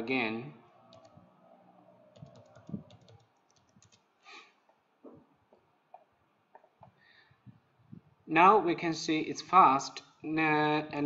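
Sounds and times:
computer keyboard typing: 0.9 - 1.2, 2.1 - 4.0.

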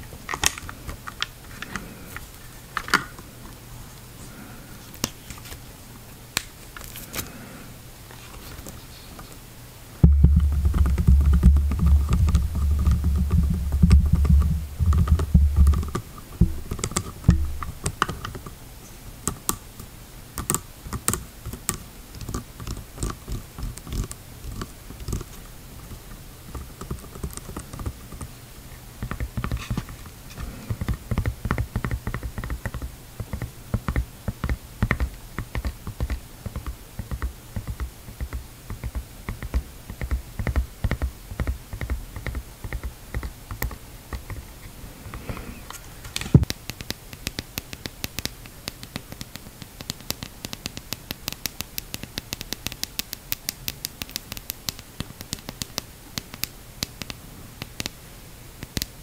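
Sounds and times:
loud knock: 10.0 - 15.8
fingernails tapping on plastic mask: 10.0 - 18.5, 20.4 - 28.3, 29.0 - 30.1, 30.7 - 44.5, 46.2 - 58.0, 58.6 - 59.0
taps on plastic snorkel tube: 10.0 - 18.5, 46.3 - 58.0.

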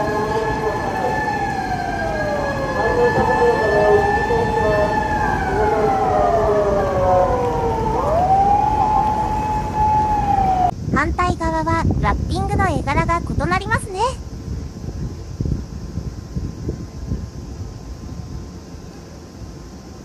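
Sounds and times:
siren wailing: 0.0 - 10.7.

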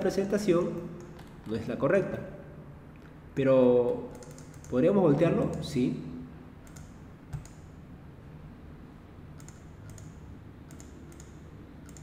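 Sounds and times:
low steady hum: 0.0 - 12.0
computer mouse clicks: 0.3 - 2.2, 3.8 - 5.7, 6.6 - 7.7, 9.4 - 12.0.

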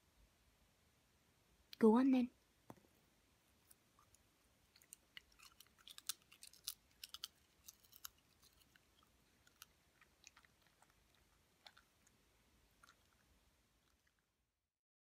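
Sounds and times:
dog crunching popcorn: 4.0 - 14.5.

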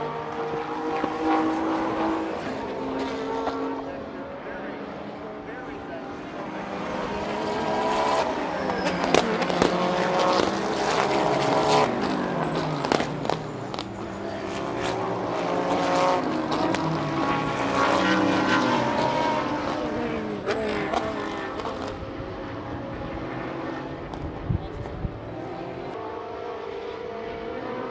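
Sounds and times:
race car engines passing: 0.0 - 27.9.

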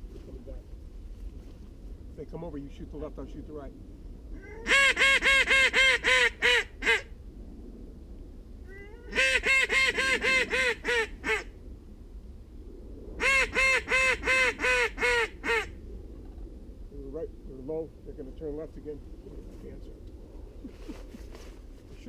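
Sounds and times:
goose call honks: 4.4 - 7.1, 8.9 - 11.5, 13.2 - 15.7.

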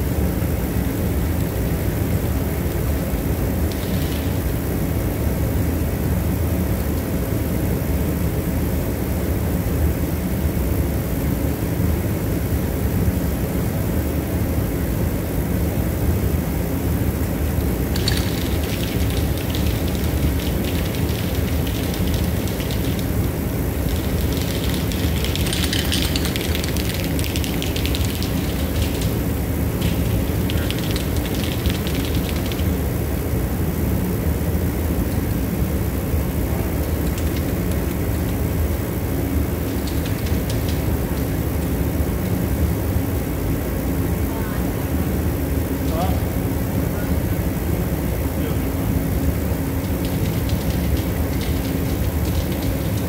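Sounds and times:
low mechanical drone: 0.0 - 53.0
rustling and crinkling wiring: 2.6 - 5.5, 17.2 - 43.0, 48.6 - 53.0.

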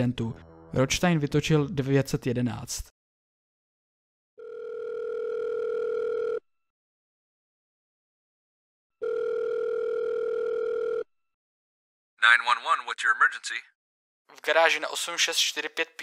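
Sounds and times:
telephone ringback tone: 4.4 - 6.4, 9.0 - 11.1.

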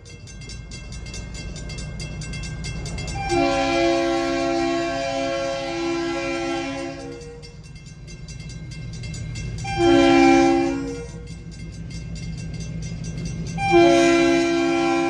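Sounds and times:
locomotive engine rumble: 0.0 - 15.0
locomotive air horn blasts: 3.2 - 7.6, 9.6 - 11.3, 13.6 - 15.0.

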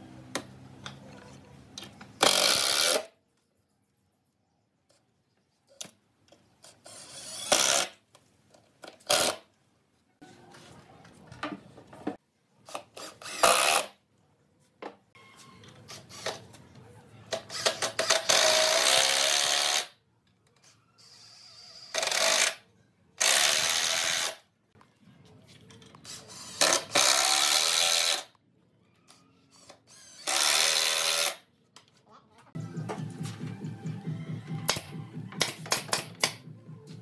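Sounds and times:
cordless drill into wood: 29.5 - 31.4.

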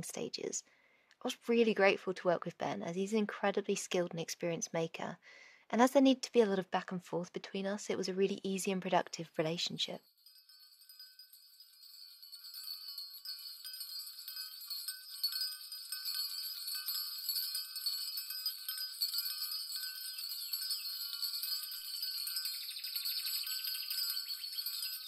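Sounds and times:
small bells tinkling: 10.0 - 25.0.

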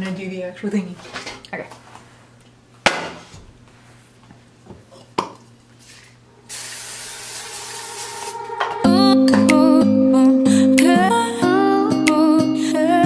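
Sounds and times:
aerosol spray hissing: 6.5 - 8.4.

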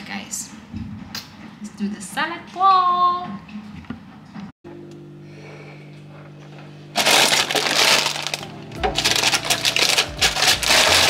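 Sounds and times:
plastic bag crinkling: 7.0 - 11.0.

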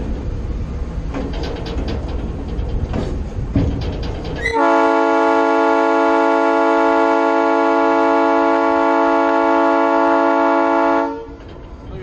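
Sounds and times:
locomotive air horn: 4.4 - 11.5.

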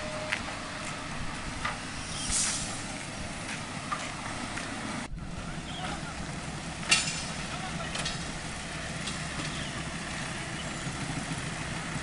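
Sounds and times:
heavy diesel engines rumbling: 0.0 - 12.0
short hiss: 2.0 - 2.9.

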